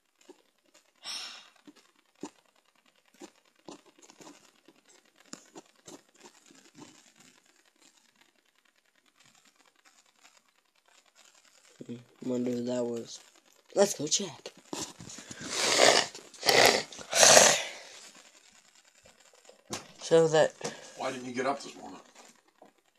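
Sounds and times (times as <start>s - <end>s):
short breathy hiss: 1.0s - 1.6s, 14.8s - 18.1s.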